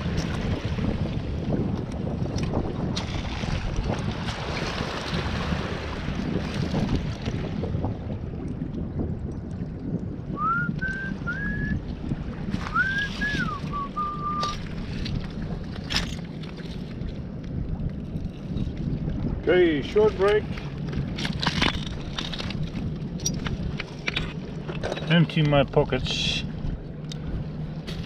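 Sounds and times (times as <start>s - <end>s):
wind buffeting microphone: 0.0s - 28.0s
short whistled notes: 12.7s - 14.6s.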